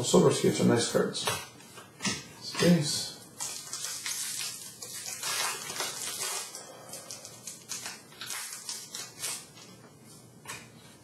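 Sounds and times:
wrapper crinkling and tearing: 3.2s - 9.8s.

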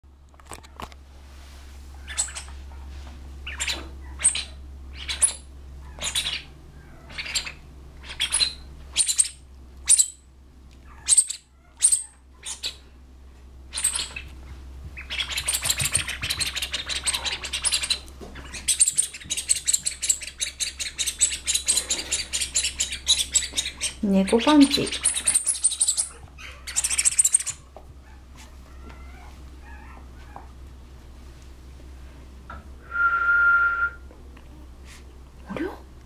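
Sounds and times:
rubber squeaky toy squeaks: 10.9s - 12.8s, 15.0s - 27.7s.

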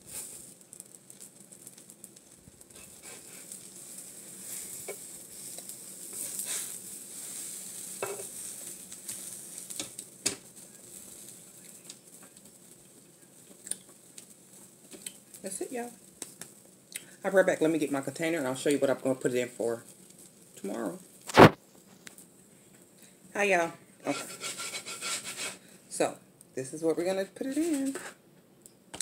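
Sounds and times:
omelet sizzling on a griddle: 0.0s - 29.0s
spatulas scraping and tapping: 2.7s - 6.8s, 7.8s - 11.0s, 24.0s - 25.6s, 27.7s - 28.2s.

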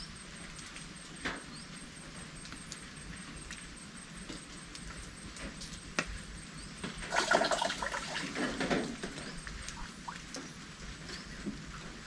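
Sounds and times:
rain falling and dripping: 0.2s - 12.0s.

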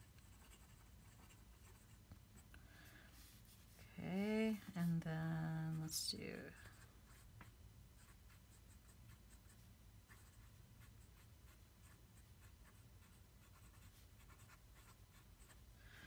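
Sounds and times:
pen nib scratching on paper: 0.0s - 2.0s, 8.0s - 15.6s.

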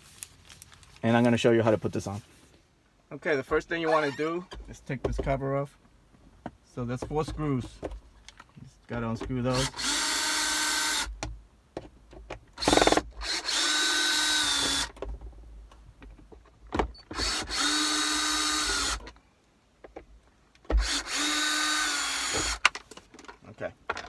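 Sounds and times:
cordless drill motor whining: 3.8s - 4.5s, 9.5s - 11.1s, 12.6s - 15.0s, 17.0s - 19.1s, 20.8s - 22.6s.

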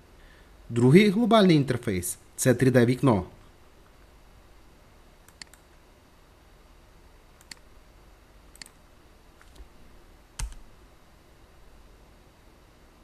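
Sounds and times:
mouse and keyboard clicks: 5.3s - 5.6s, 7.4s - 7.6s, 8.5s - 8.8s.

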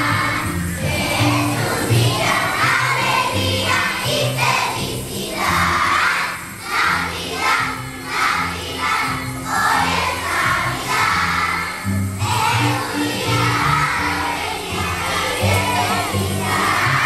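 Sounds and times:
children singing: 0.0s - 17.0s
musical accompaniment with bass: 0.0s - 17.0s
jingle bells shaken: 11.9s - 17.0s.

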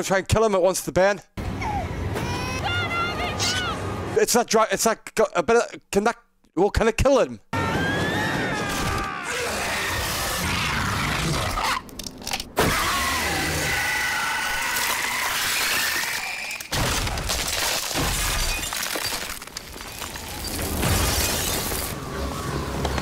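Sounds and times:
loud shattering crash: 16.6s - 22.0s.

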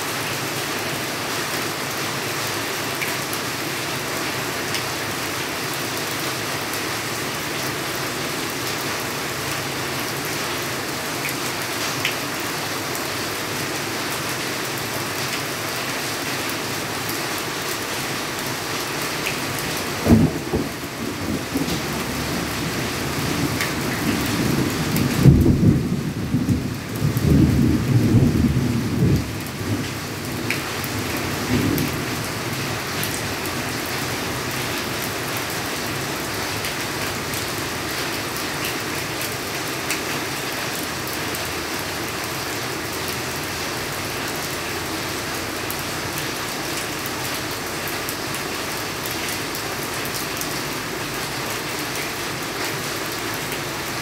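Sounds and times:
rain falling on leaves: 0.0s - 54.0s
thunder rumble: 20.0s - 29.9s.

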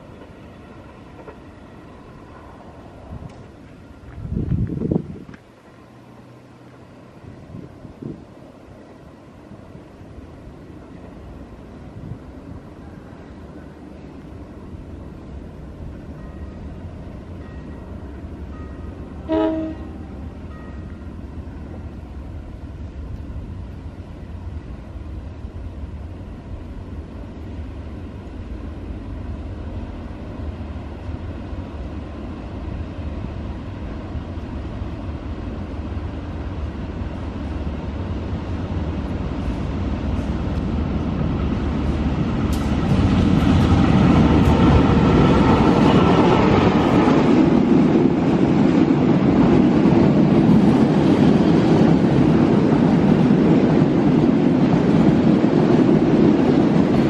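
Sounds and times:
rail noise: 0.0s - 57.0s
train horn blast: 19.2s - 20.1s.

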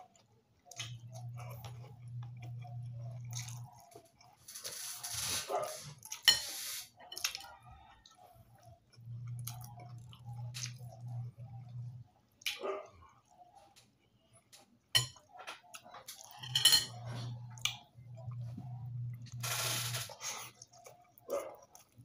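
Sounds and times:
chewing: 0.0s - 6.3s, 6.9s - 22.0s
spoon clinking and scraping in bowl: 6.2s - 7.4s, 14.9s - 15.3s, 16.2s - 17.3s
low hum: 16.6s - 20.2s.

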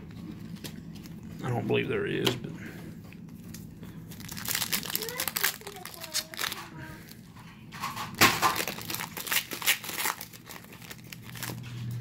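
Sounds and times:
foil wrapper crinkling: 3.4s - 7.4s, 8.2s - 12.0s.

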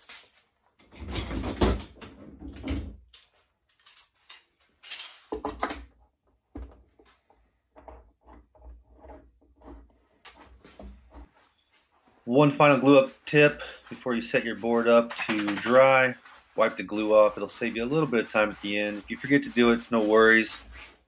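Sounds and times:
metallic clatter of clamp: 3.1s - 5.2s.

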